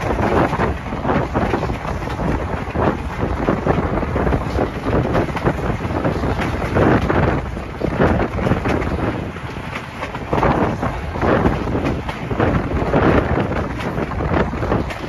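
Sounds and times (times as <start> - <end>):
train rumbling on track: 0.0 - 15.0
wind buffeting microphone: 0.0 - 15.0.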